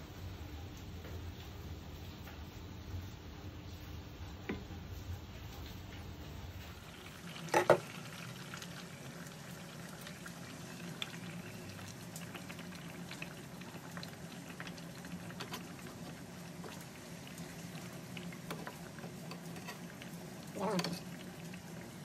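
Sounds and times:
curry sauce bubbling and popping: 5.8s - 22.0s
spatula stirring: 15.2s - 17.5s, 18.4s - 21.1s.

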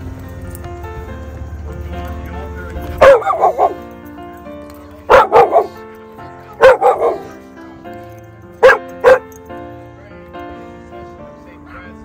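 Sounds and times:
background music: 0.0s - 12.0s
dog barking: 3.0s - 3.8s, 5.1s - 5.8s, 6.5s - 7.4s, 8.6s - 9.3s.

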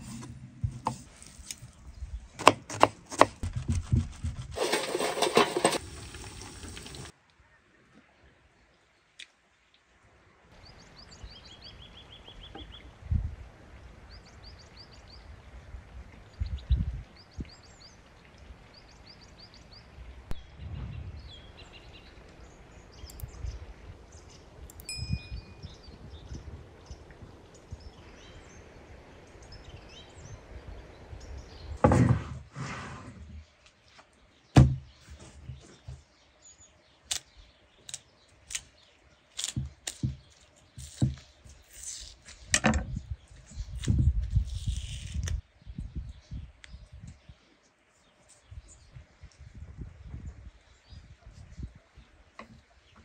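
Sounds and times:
small birds chirping: 16.2s - 31.9s, 33.2s - 53.0s
dull low thumps: 20.3s - 21.5s
sharp knocks: 34.6s - 34.9s.

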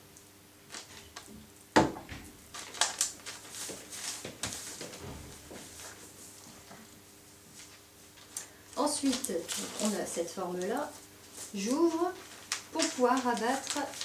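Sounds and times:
paper crinkling and rustling: 0.7s - 1.4s, 2.5s - 14.0s
knock on tabletop: 1.8s - 2.2s.

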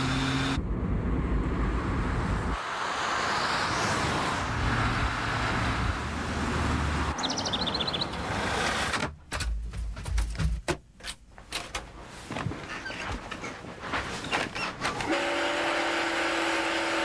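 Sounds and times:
vehicle engine and road noise: 0.0s - 10.2s.

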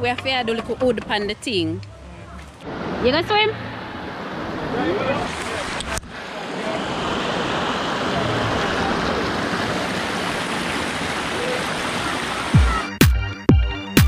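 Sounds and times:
water rushing over rocks: 2.6s - 12.9s
electronic dance music beat: 12.5s - 14.0s.

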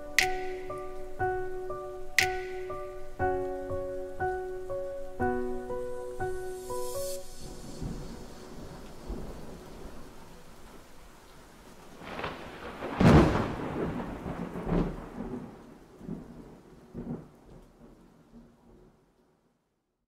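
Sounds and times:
steady rain: 0.0s - 19.8s
rolling thunder: 7.4s - 11.1s, 11.8s - 17.9s.

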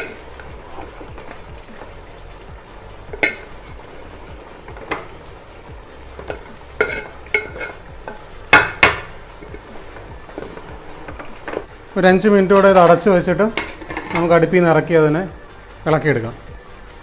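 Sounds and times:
metal spoon stirring in a pot: 0.0s - 11.7s, 12.4s - 14.5s
spoon clinking against pot: 3.1s - 3.7s, 6.2s - 9.6s, 12.7s - 14.3s.

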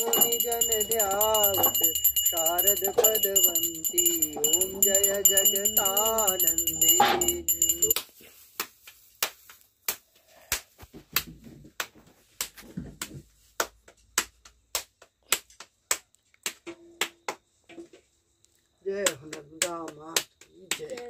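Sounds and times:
hands slapping dough: 8.0s - 17.8s.

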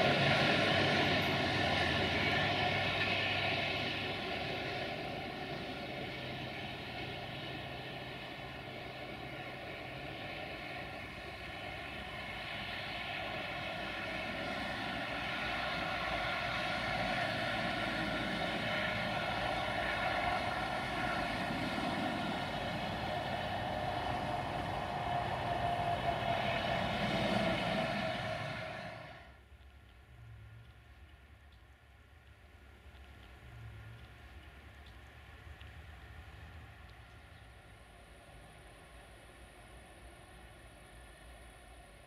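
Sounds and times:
passenger train running: 0.0s - 29.4s.

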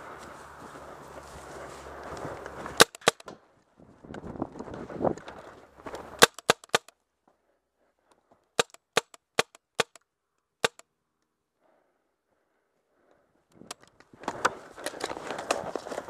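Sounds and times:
paintball marker firing: 2.8s - 3.4s, 6.2s - 6.9s, 8.6s - 10.0s, 10.6s - 10.8s.

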